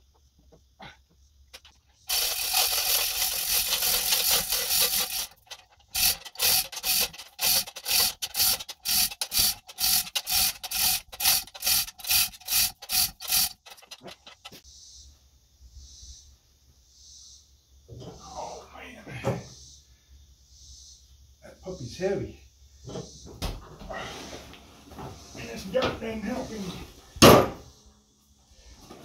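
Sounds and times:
chain hoist chain rattling: 1.5s - 14.6s.

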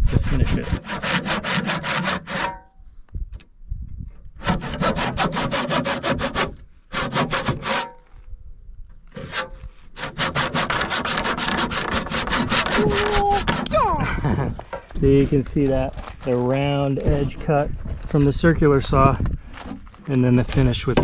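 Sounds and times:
handsaw cutting wood: 0.0s - 2.6s, 4.4s - 8.0s, 9.2s - 13.7s.

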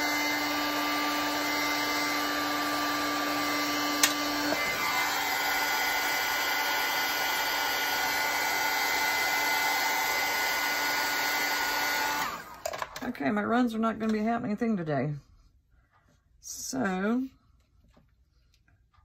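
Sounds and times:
heat gun blowing air: 0.0s - 12.6s
click: 4.0s - 4.2s.

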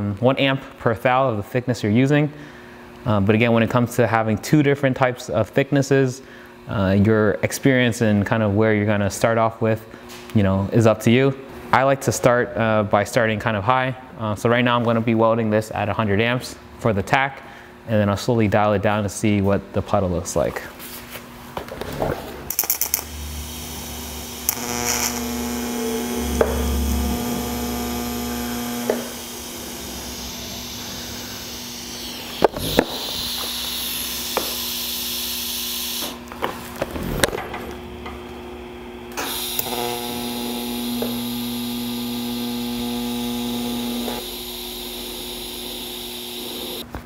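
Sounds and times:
gas hissing: 22.5s - 35.0s
welding arc buzzing: 22.5s - 46.9s.

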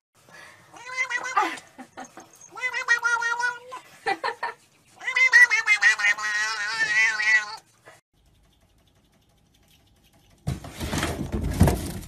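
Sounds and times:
cat yowling: 0.8s - 1.6s, 2.4s - 3.8s, 5.0s - 7.6s.

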